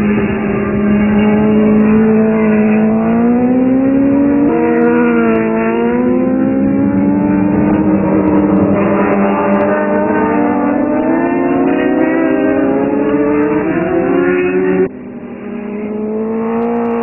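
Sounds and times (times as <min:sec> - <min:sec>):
motorcycle engines revving high: 0:00.0 - 0:17.0.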